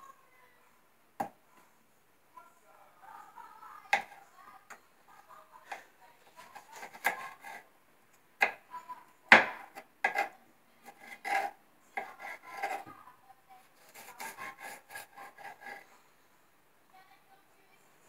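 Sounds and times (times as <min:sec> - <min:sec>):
knife cutting on wooden board: 0:06.4 - 0:07.6, 0:09.3 - 0:12.8, 0:13.8 - 0:15.8.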